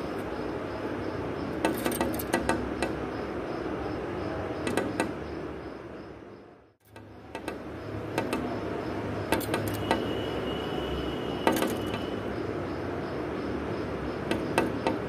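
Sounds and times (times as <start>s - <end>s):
bird pecking on window glass: 4.6s - 5.2s, 6.9s - 10.1s, 14.2s - 15.0s.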